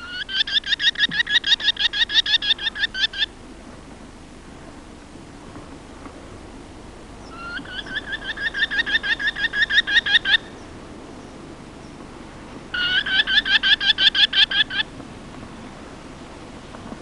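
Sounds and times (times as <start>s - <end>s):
merlin calling sharp notes: 12.7s - 14.9s.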